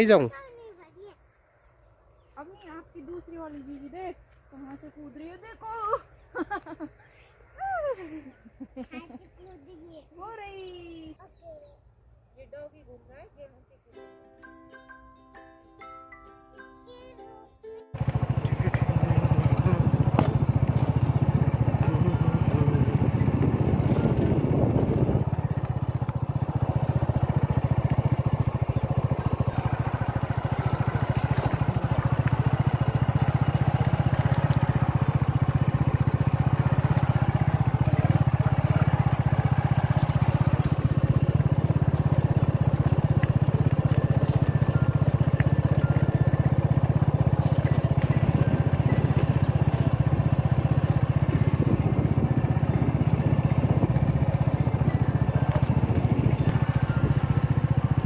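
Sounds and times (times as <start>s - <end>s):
motorcycle engine running: 17.9s - 58.0s.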